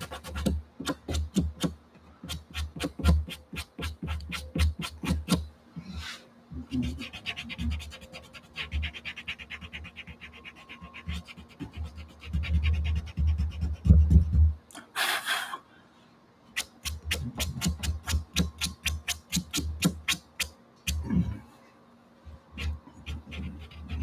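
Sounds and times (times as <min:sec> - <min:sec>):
pastel scratching on paper: 0:02.3 - 0:05.4, 0:06.7 - 0:14.3, 0:16.6 - 0:21.0, 0:22.6 - 0:24.0.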